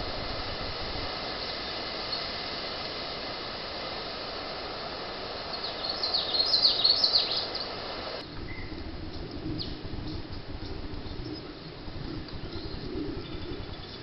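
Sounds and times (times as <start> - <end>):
microphone hiss: 0.0 - 14.0
small bird chirping: 5.5 - 7.8, 11.1 - 14.0.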